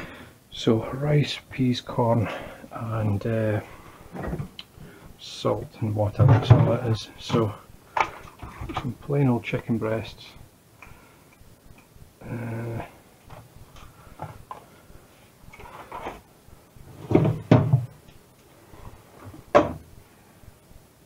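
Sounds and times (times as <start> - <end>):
loud knocks and thuds: 17.0 - 18.0, 19.5 - 19.8.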